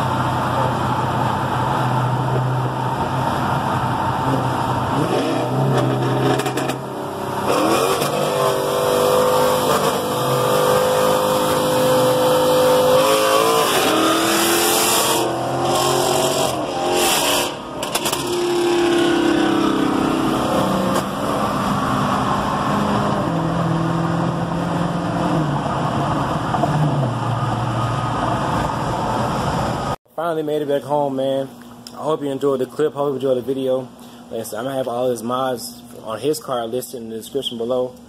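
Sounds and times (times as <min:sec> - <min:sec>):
car engines accelerating hard: 0:00.0 - 0:30.0.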